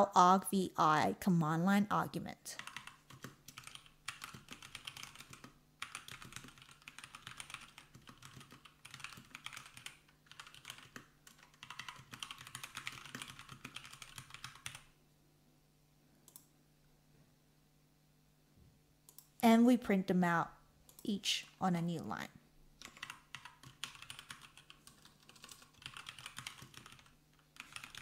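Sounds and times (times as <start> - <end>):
fast typing on keyboard: 2.6 - 14.9, 22.8 - 28.0.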